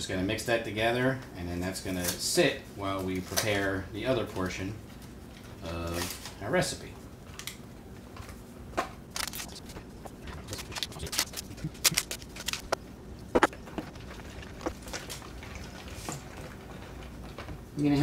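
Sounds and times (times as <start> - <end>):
paper packets tearing and rustling: 9.1 - 15.2.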